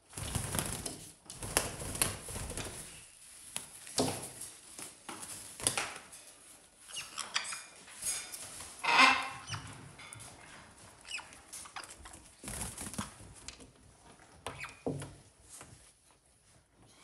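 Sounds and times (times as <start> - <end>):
parrots scuffling among toys: 0.1 - 17.0
parrot high squeaks: 6.9 - 7.7.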